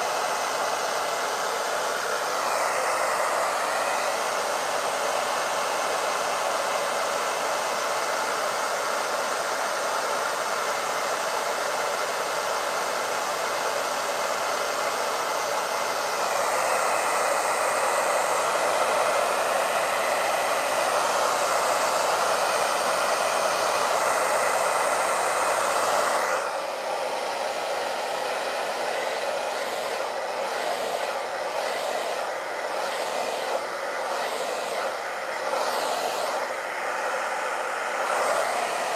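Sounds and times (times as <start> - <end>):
hair dryer blowing: 0.0 - 38.9.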